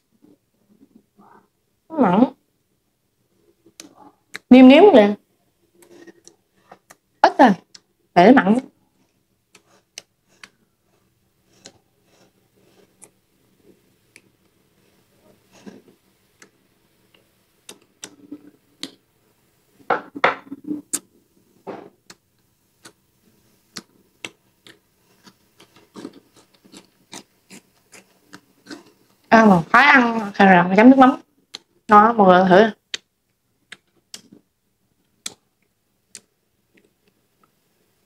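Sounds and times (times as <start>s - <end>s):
eating sounds: 23.7s - 29.2s.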